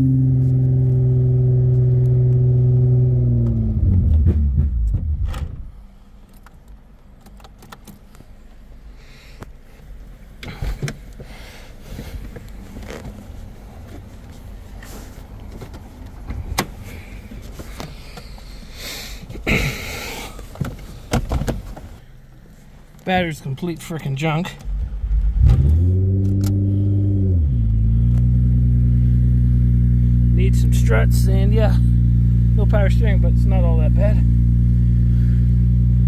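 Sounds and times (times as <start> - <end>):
car engine revving down: 0.0 - 5.7, 24.6 - 36.0
clicks and rattles inside car: 3.4 - 8.6, 9.8 - 19.5, 20.2 - 26.6.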